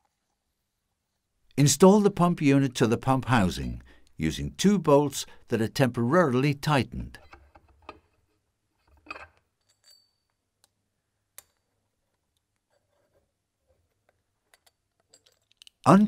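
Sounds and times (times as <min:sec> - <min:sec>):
faint metallic clicks and clinks: 0:08.8 - 0:10.8, 0:14.0 - 0:15.9.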